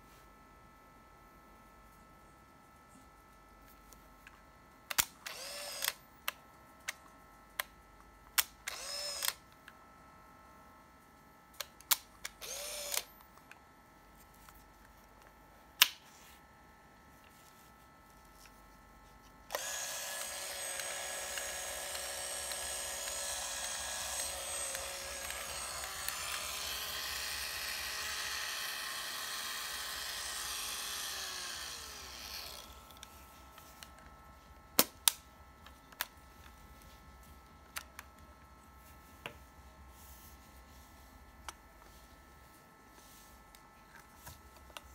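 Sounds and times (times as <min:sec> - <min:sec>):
camera motor whir: 0:04.9 - 0:06.0, 0:08.4 - 0:09.4, 0:12.2 - 0:13.2, 0:19.5 - 0:33.1
film motor whine: 0:05.0 - 0:06.2, 0:08.6 - 0:09.5, 0:12.3 - 0:13.3, 0:19.4 - 0:34.2.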